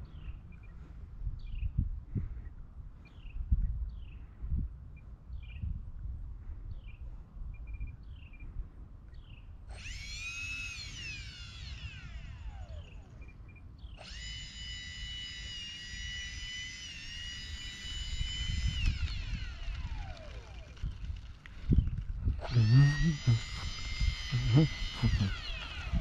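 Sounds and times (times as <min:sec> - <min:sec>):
wind buffeting microphone: 0:00.0 - 0:09.6, 0:17.5 - 0:26.0
electric ducted fans whining: 0:09.6 - 0:26.0.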